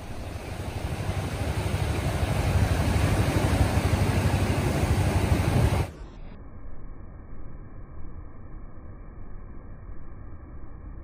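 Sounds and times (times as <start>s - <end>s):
waves breaking on beach: 0.0s - 6.0s.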